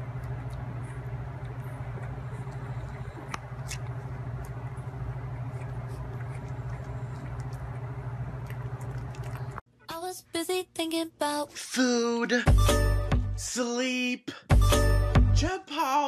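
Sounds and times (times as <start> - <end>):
low hum and hiss: 0.0 - 9.6.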